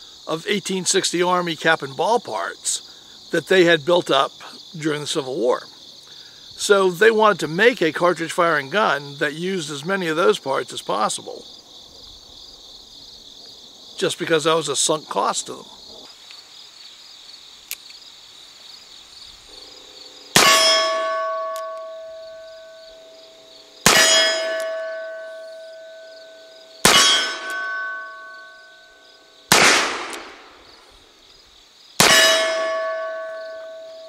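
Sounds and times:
crickets chirping: 0.0 - 34.0
steel target ringing: 19.6 - 30.6, 32.0 - 34.0
revolver gunshots: 23.8 - 25.1, 26.8 - 27.9, 29.5 - 30.6, 32.0 - 32.9.

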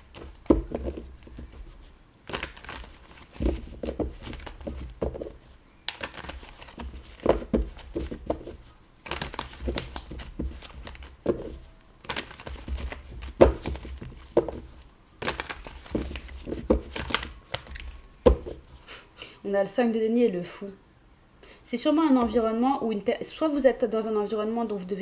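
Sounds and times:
cards riffling and slapping: 0.0 - 18.8.

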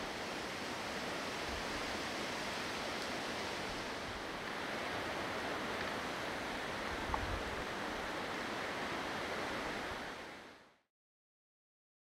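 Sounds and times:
wind rushing through shrubs: 0.0 - 10.7
small tick: 7.1 - 7.3.

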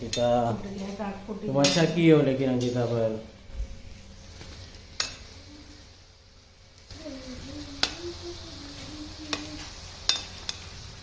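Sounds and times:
food deep-frying in hot oil: 0.0 - 11.0.

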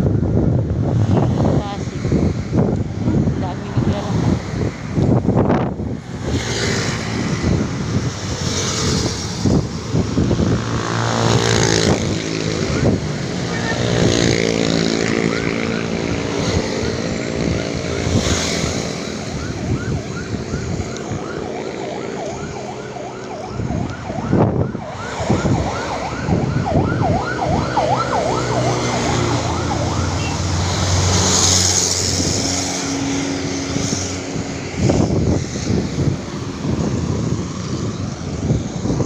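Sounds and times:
passing road vehicles: 0.0 - 39.0
siren yelping: 11.9 - 31.1.

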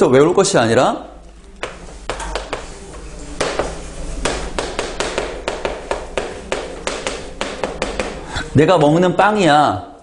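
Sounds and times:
chalk writing on chalkboard: 1.6 - 9.0.

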